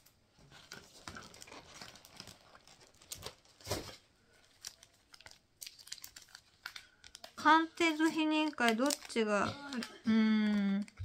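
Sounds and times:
plastic packaging crinkling: 0.5 - 11.0.

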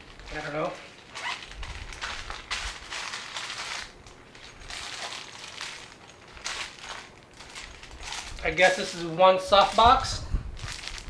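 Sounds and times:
fabric scraping and crinkling: 0.1 - 8.8
vinyl pouch rustling: 0.2 - 8.8.

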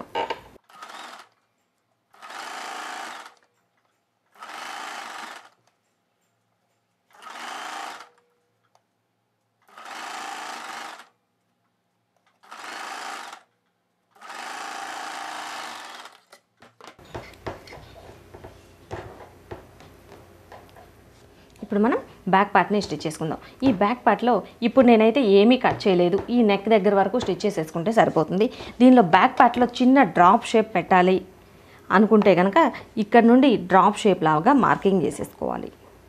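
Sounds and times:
electric sewing machine running: 0.6 - 1.4, 2.1 - 3.4, 4.4 - 5.6, 7.1 - 8.2, 9.6 - 11.1, 12.4 - 13.5, 14.1 - 16.3.

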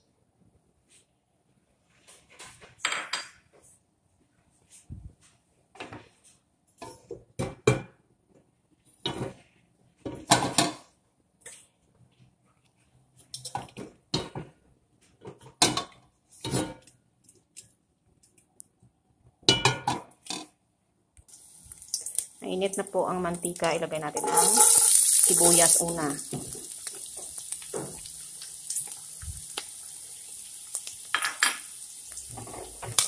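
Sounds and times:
frying pan and utensils clattering: 24.0 - 25.6, 30.8 - 33.0.

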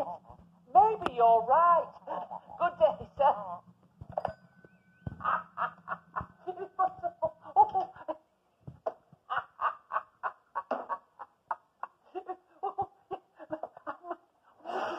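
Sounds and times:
person laughing: 2.0 - 3.2, 5.1 - 8.3, 9.2 - 14.9.

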